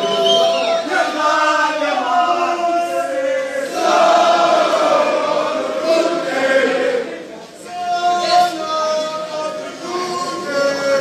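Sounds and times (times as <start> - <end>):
crowd singing a chant: 0.0 - 7.5.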